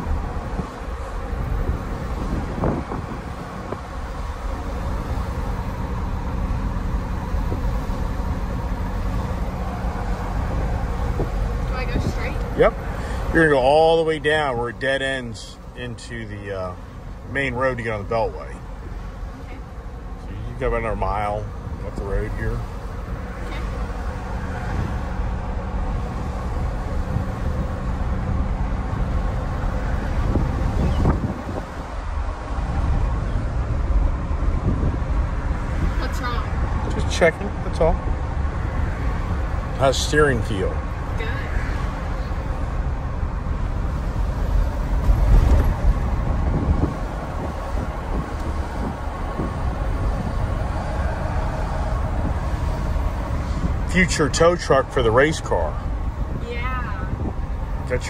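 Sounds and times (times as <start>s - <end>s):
low engine drone: 0.0s - 58.0s
tyre and road noise: 0.0s - 58.0s.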